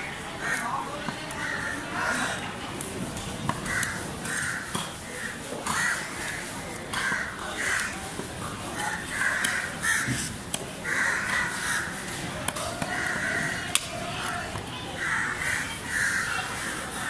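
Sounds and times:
crows cawing: 3.6 - 7.9, 8.8 - 12.2, 12.8 - 13.7, 15.0 - 17.0.

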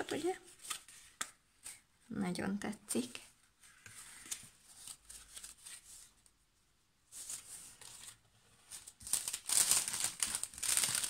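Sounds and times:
plastic packaging crinkling: 9.0 - 11.0.

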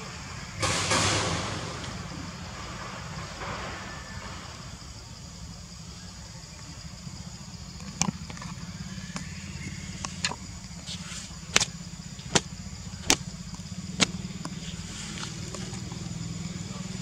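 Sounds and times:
sharp clicks: 11.5 - 11.7, 12.3 - 13.2.

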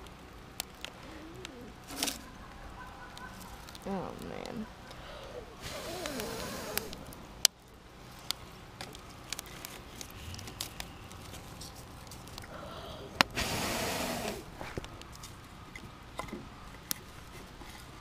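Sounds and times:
campfire crackling and popping: 0.0 - 18.0
breathy rush of noise: 4.6 - 15.0.

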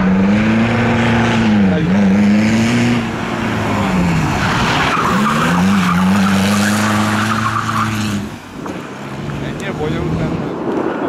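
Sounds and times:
car engine at high revs: 0.0 - 11.0
tyres squealing and skidding: 1.5 - 8.4.

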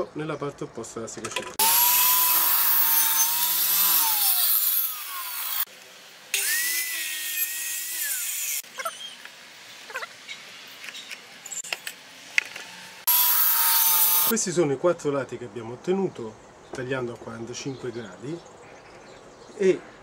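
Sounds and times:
circular saw cutting wood: 1.6 - 8.7, 12.7 - 14.3.

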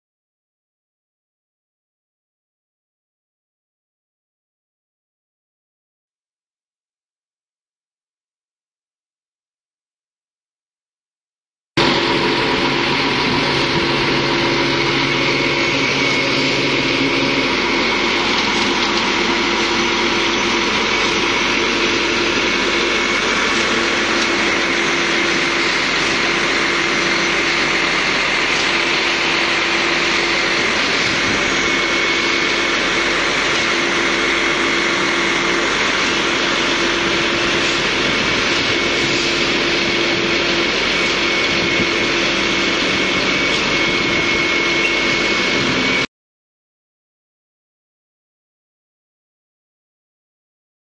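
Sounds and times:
truck engine with high whine: 11.8 - 46.1.

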